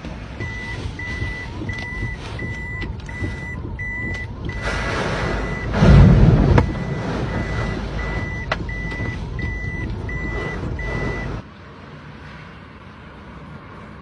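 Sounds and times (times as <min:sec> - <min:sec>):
car warning beeper: 0:00.3 - 0:11.4
wave crashing over car: 0:04.6 - 0:08.2.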